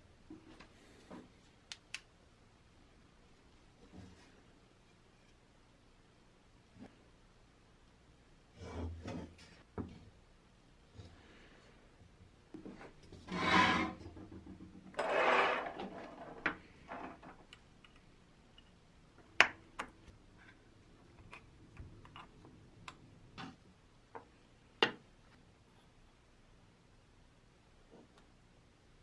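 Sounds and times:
metal helmet scraping on wood: 13.1 - 14.3, 14.9 - 17.3.

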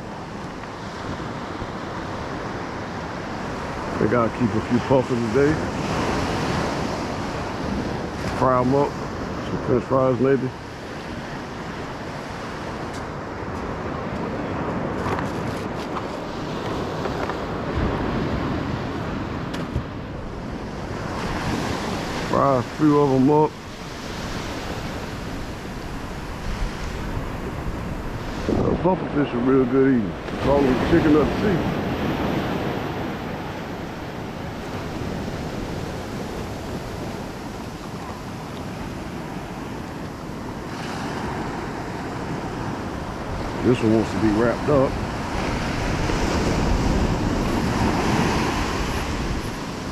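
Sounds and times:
ocean surf: 0.0 - 49.9
wind noise on microphone: 10.5 - 49.9.

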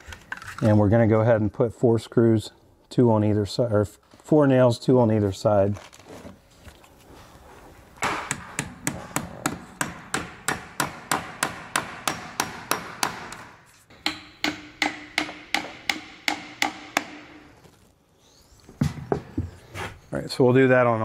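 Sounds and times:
hammer driving nails: 8.0 - 17.5.

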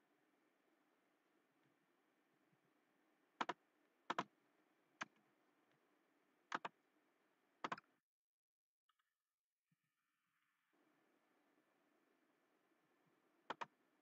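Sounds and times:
computer mouse clicking: 3.4 - 4.3, 6.5 - 6.7, 13.5 - 13.8.

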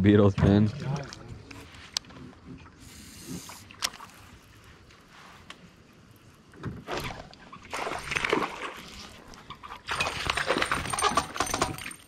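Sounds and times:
fish splashing in water: 6.9 - 9.2
clattering in a small boat: 9.4 - 12.0.

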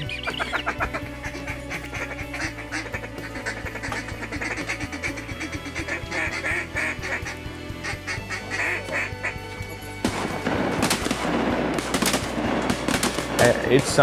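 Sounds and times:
duck quacking: 0.0 - 9.4
music with steady beat: 0.0 - 14.0.

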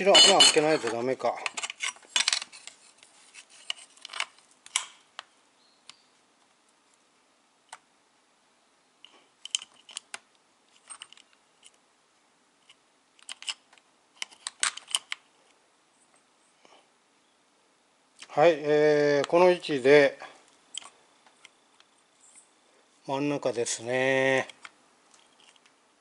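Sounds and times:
light clicks and metallic clinks: 0.1 - 2.8.

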